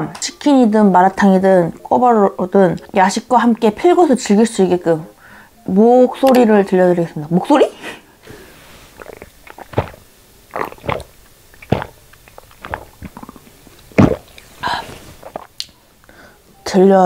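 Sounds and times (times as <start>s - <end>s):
person gulping: 8.9s - 15.6s.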